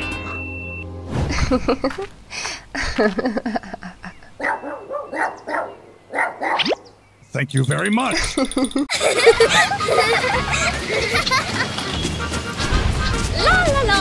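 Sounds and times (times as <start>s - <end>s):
small dog barking and yipping: 4.4s - 6.8s.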